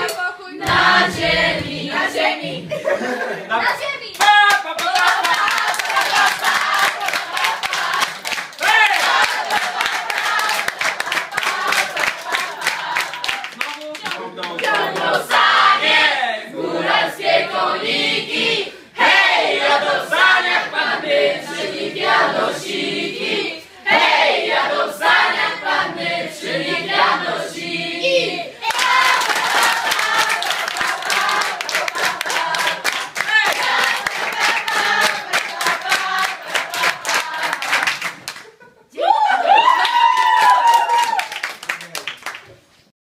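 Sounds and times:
young voices singing together: 0.0 - 3.4, 4.8 - 38.1
hands clapping: 4.0 - 15.2, 28.6 - 38.6, 39.8 - 42.6.

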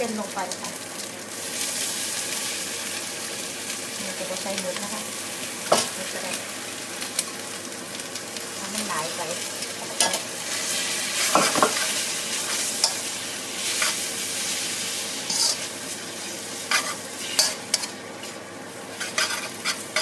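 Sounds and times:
food sizzling in a wok: 0.0 - 20.0
spatula scraping and knocking pan: 16.7 - 18.4, 19.0 - 20.0.

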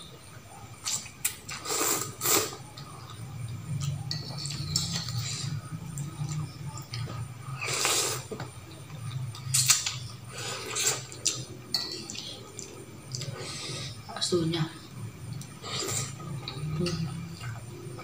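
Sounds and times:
steady low hum: 0.0 - 18.0
slurping noodles: 0.8 - 2.6, 7.6 - 8.4, 9.5 - 11.4
chewing: 0.8 - 13.9.

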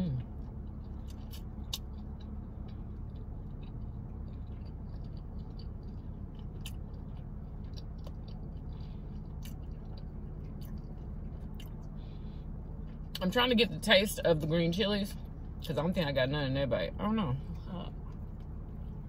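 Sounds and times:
person chewing: 0.0 - 13.2
steady low hum: 0.0 - 19.0.

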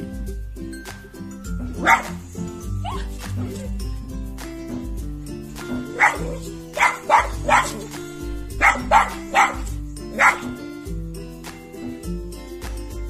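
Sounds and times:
background music: 0.0 - 13.0
small dog barking: 1.8 - 2.2, 2.8 - 3.7, 5.9 - 8.0, 8.6 - 10.6.

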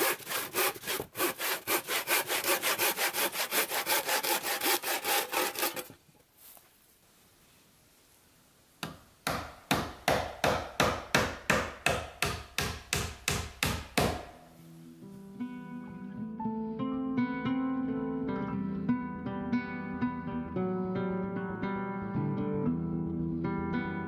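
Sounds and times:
handsaw cutting wood: 0.0 - 6.0
hammer nailing wooden board: 8.8 - 14.4.

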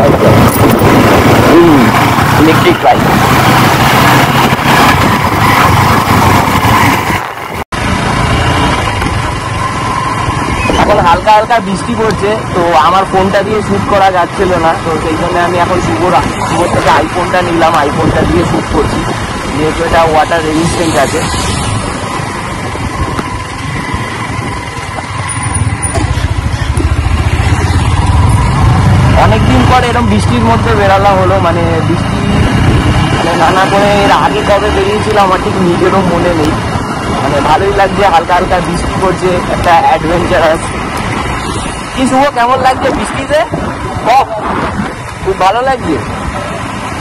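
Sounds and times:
wet road noise: 0.0 - 47.0
wind rushing on microphone: 0.0 - 47.0
motorcycle engine running: 21.7 - 38.2.

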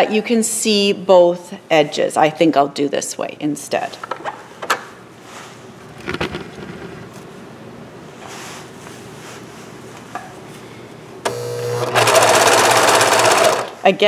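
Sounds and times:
fabric handling noises: 8.0 - 10.6
serger motor humming: 11.3 - 12.2.

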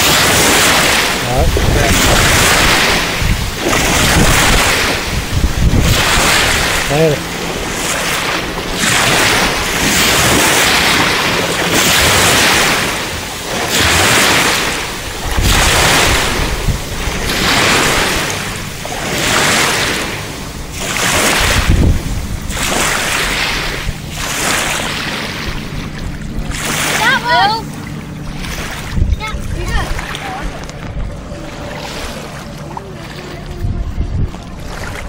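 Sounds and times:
small waves washing ashore: 0.0 - 35.0
wind buffeting microphone: 0.0 - 35.0.

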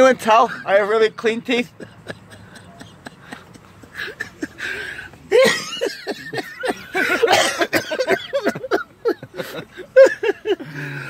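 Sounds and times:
man coughing: 1.7 - 9.8.

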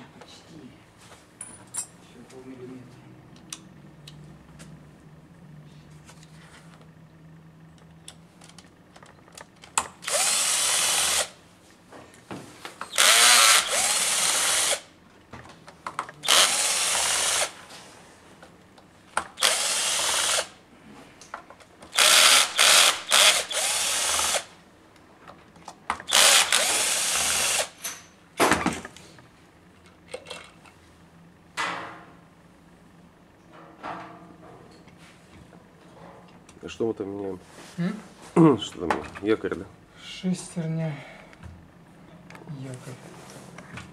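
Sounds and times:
power screwdriver running: 10.0 - 11.4, 12.9 - 14.9, 16.2 - 17.6, 19.4 - 20.6, 21.9 - 24.5, 26.1 - 27.8.

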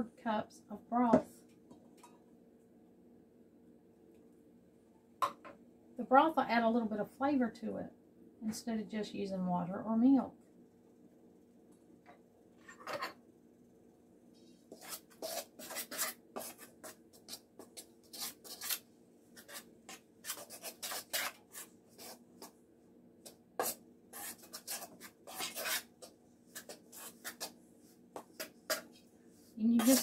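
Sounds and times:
utensil scraping dough in metal bowl: 14.5 - 22.6, 23.6 - 30.0.

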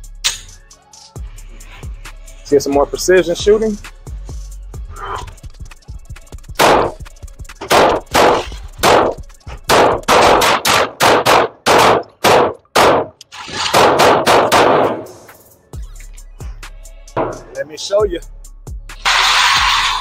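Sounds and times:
pistol shots with echo: 9.7 - 13.1, 13.8 - 15.1.

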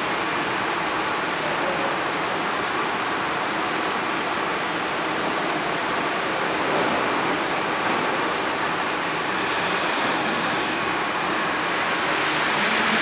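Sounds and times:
steady rushing noise: 6.5 - 13.0.

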